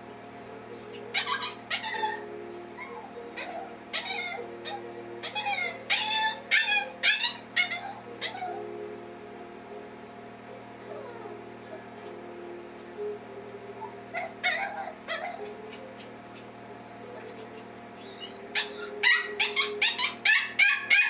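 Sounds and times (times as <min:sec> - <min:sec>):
puppy whining and crying: 0:00.8 - 0:08.7, 0:10.9 - 0:11.8, 0:13.8 - 0:21.0.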